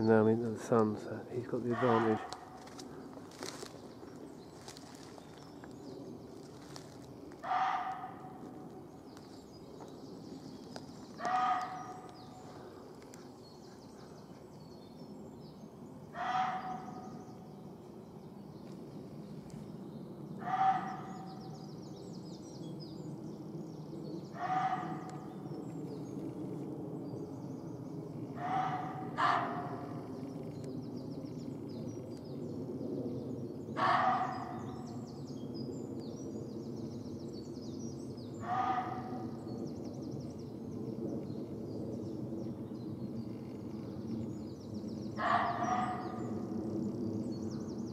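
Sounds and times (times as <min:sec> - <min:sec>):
small birds twittering: 0:00.0 - 0:47.9
deer barking: 0:01.7 - 0:02.4, 0:07.4 - 0:08.2, 0:11.2 - 0:11.9, 0:28.4 - 0:29.7, 0:33.8 - 0:34.6, 0:45.2 - 0:46.1.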